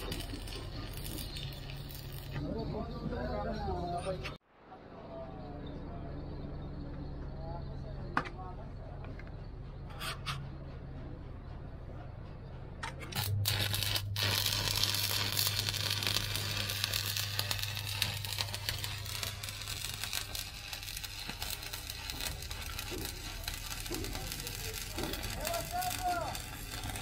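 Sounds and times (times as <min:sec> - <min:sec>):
welding arc crackling: 0:00.0 - 0:02.4, 0:13.2 - 0:27.0.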